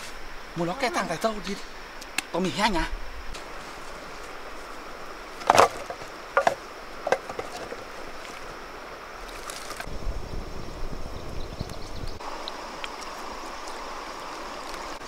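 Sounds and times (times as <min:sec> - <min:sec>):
wooden logs knocking together: 0:05.4 - 0:08.0.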